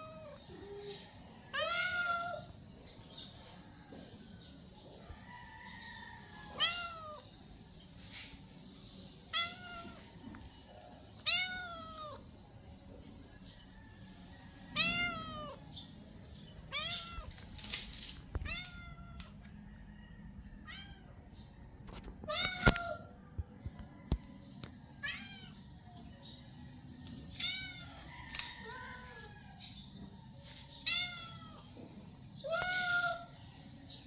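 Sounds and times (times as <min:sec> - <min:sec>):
cat meowing: 0:06.6 - 0:07.2, 0:11.2 - 0:12.2, 0:14.8 - 0:15.6, 0:16.7 - 0:17.3, 0:18.4 - 0:19.2.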